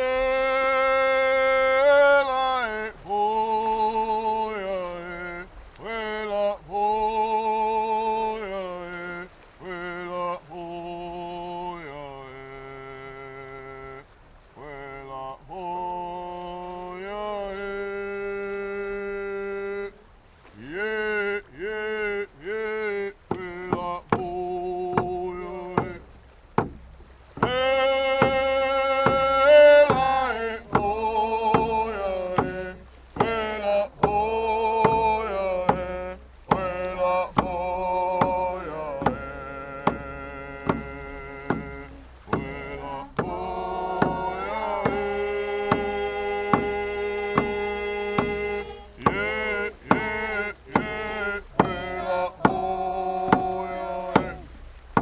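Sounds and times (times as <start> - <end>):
singing in long gliding notes: 0.0 - 14.0, 14.6 - 26.4, 27.3 - 55.0
steady drum strikes: 23.3 - 55.0.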